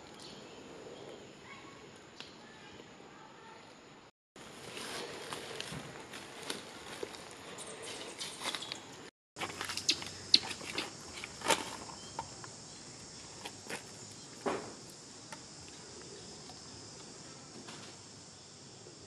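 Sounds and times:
high-pitched insect chorus: 0:07.6 - 0:19.0.

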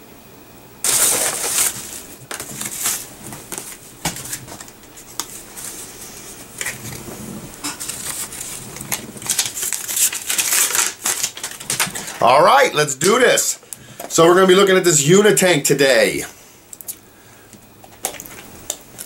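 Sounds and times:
paper packaging rustling: 0:00.8 - 0:07.0, 0:07.6 - 0:13.4.

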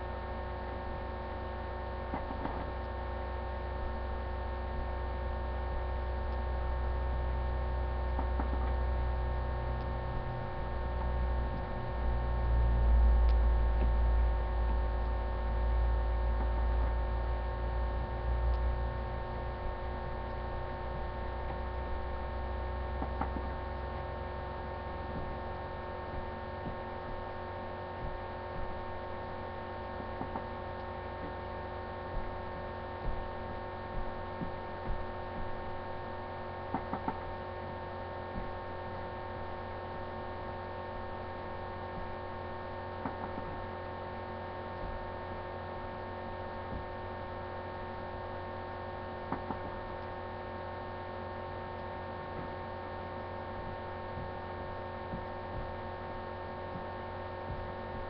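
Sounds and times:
electrical hum: 0:00.0 - 0:58.0
faint clicks and taps: 0:02.1 - 0:03.0, 0:08.1 - 0:08.8, 0:23.0 - 0:23.6, 0:36.7 - 0:37.2.

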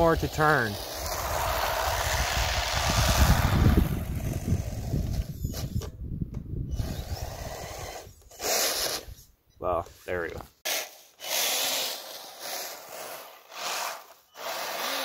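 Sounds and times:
electric motor and track on snow: 0:00.0 - 0:06.0, 0:06.7 - 0:09.3, 0:10.7 - 0:15.0
wind rumble on microphone: 0:01.2 - 0:08.2.

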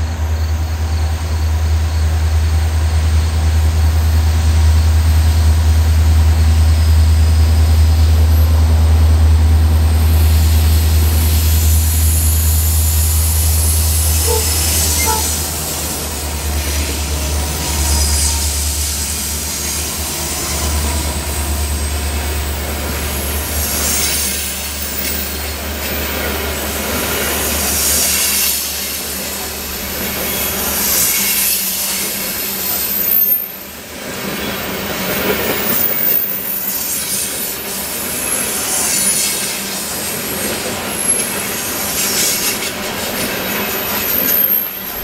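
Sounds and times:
locomotive engine rumble: 0:00.0 - 0:24.0
high-pitched wheel squeal: 0:14.2 - 0:15.5, 0:43.5 - 0:45.0
train wheels clattering on rails: 0:34.0 - 0:45.0.

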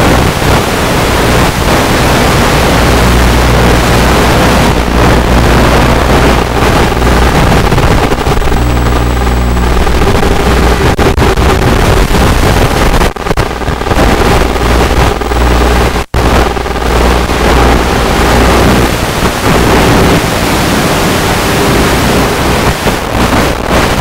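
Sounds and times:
faint steady whine: 0:00.0 - 0:24.0.

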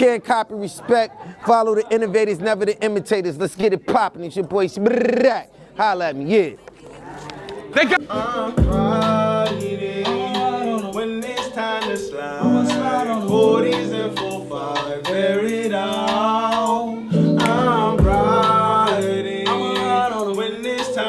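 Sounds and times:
man rapping in sung style: 0:00.0 - 0:05.4, 0:07.8 - 0:21.0
hip-hop backing music with chords: 0:08.1 - 0:21.0.

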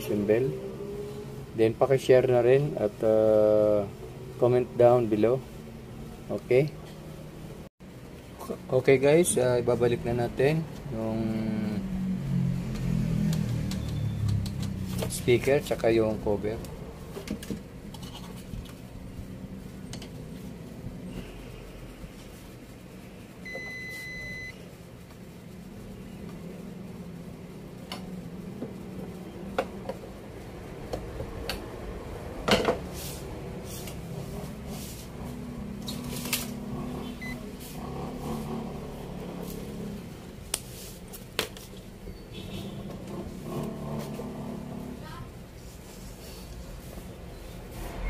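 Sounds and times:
electronic beep: 0:23.5 - 0:24.6, 0:37.2 - 0:37.4.

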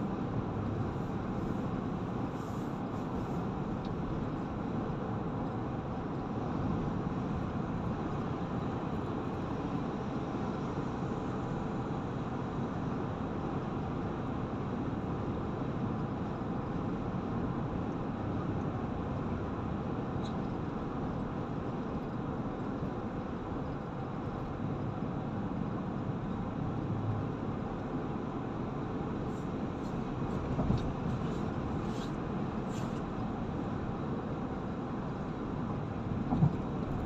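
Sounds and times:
road and tyre noise inside car: 0:00.0 - 0:37.0.

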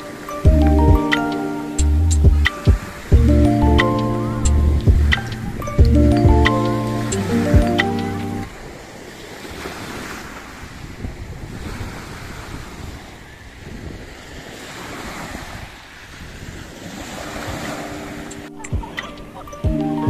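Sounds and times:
wind rumbling on microphone: 0:01.8 - 0:20.0.

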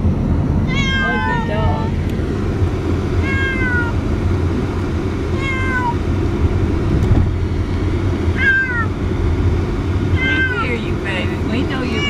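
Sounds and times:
car cabin rumble: 0:00.0 - 0:12.0
cat meowing: 0:00.7 - 0:01.9, 0:03.2 - 0:04.0, 0:05.4 - 0:06.0, 0:08.3 - 0:08.9, 0:10.1 - 0:10.7.

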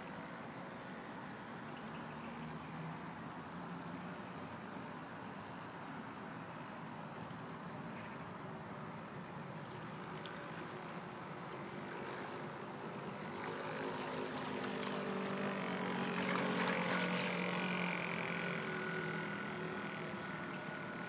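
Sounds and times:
model boat motor humming: 0:09.6 - 0:21.0.

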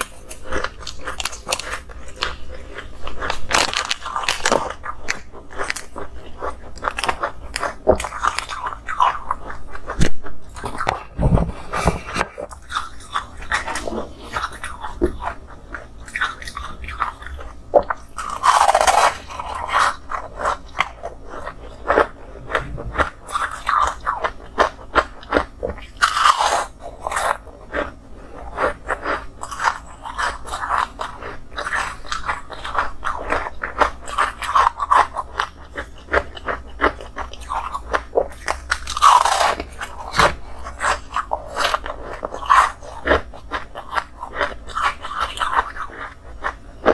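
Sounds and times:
crunching frozen ice: 0:00.0 - 0:10.9, 0:16.1 - 0:46.9.

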